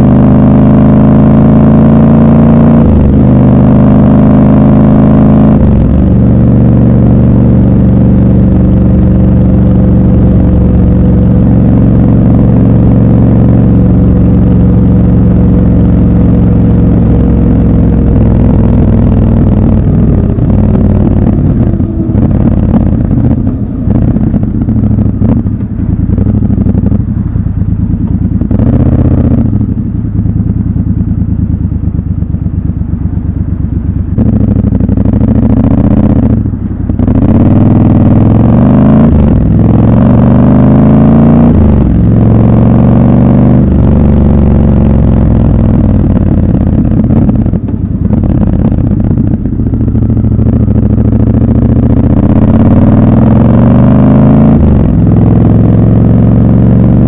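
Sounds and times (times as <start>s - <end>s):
motorcycle engine accelerating: 0.0s - 57.0s.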